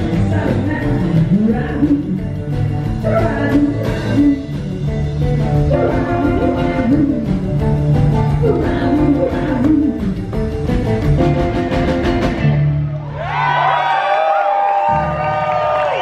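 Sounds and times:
woman singing: 0:00.0 - 0:04.6, 0:05.6 - 0:07.4, 0:08.2 - 0:10.3
drums with cymbal beat: 0:00.0 - 0:12.7
acoustic and electric guitars: 0:00.0 - 0:13.3
upright bass: 0:00.0 - 0:13.4.

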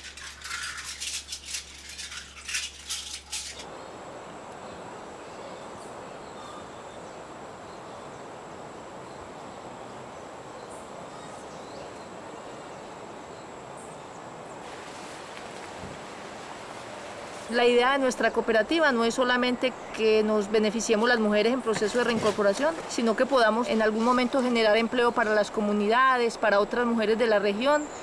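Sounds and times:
faint high insect tone: 0:00.0 - 0:28.0
outdoor hiss: 0:00.0 - 0:28.0
faint bird chirps: 0:04.6 - 0:08.3.

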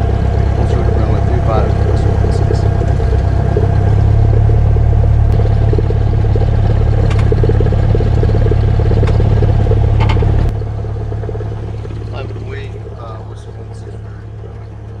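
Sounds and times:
airplane engine droning: 0:00.0 - 0:15.0.

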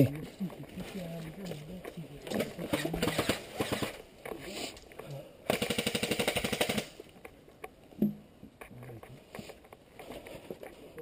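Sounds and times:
airsoft gun full-auto burst: 0:02.7 - 0:04.0, 0:05.5 - 0:07.0.

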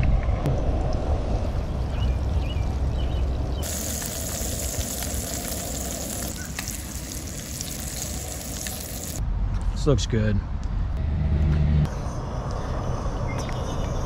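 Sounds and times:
low rumble: 0:00.0 - 0:09.2
fish sizzling in hot oil: 0:03.6 - 0:09.2.

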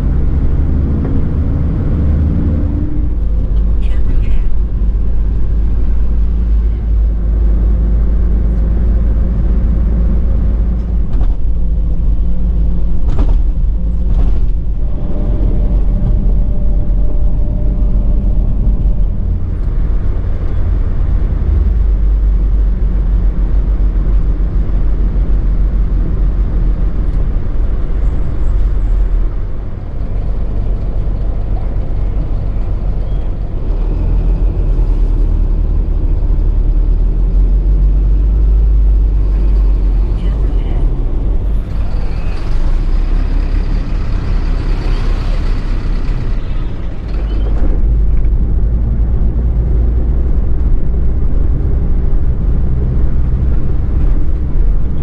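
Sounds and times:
truck diesel engine rumble: 0:00.0 - 0:55.0.

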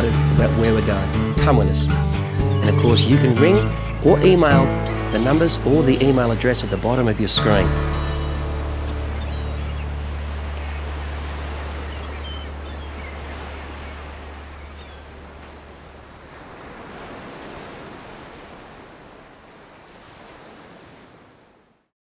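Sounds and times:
waves breaking: 0:00.0 - 0:21.8
low sustained music note: 0:04.5 - 0:12.6.

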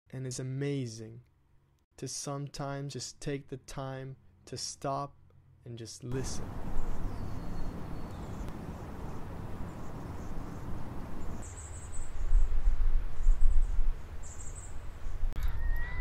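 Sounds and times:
steady outdoor background noise: 0:06.1 - 0:16.0
high bird chirps: 0:06.3 - 0:12.1.

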